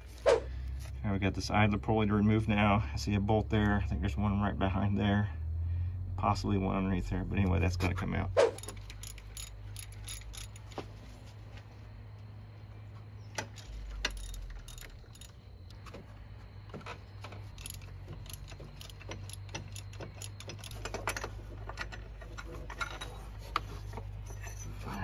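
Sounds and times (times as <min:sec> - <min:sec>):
steady low hum: 0:00.0 - 0:22.4
ratchet and wrench clicking: 0:08.5 - 0:10.8, 0:13.4 - 0:15.7, 0:17.5 - 0:22.0.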